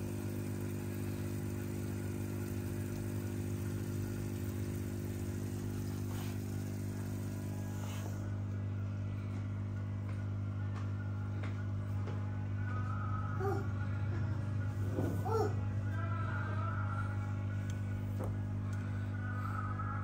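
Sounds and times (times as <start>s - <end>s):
aquarium pump humming: 0.0s - 20.0s.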